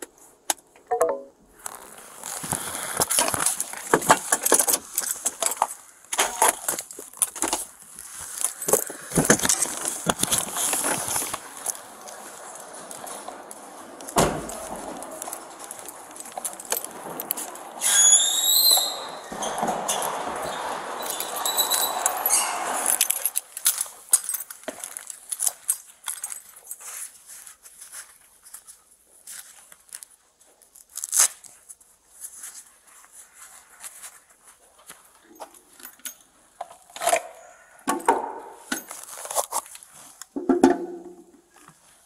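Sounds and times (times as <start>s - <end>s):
rustling handling noise: 1.5s - 17.8s, 21.0s - 37.7s, 38.6s - 40.4s
short rising squeak: 17.8s - 23.0s.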